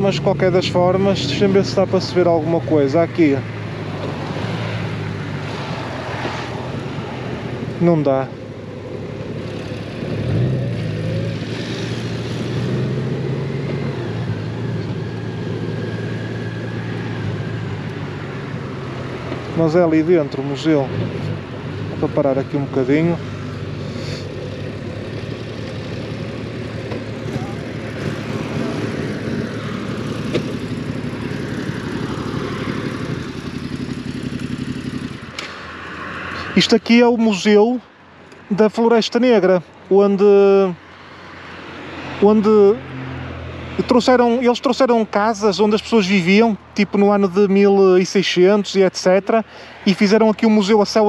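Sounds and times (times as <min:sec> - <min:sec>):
motorcycle engine running: 0:06.7 - 0:36.0
motorcycle engine idling: 0:23.4 - 0:35.5.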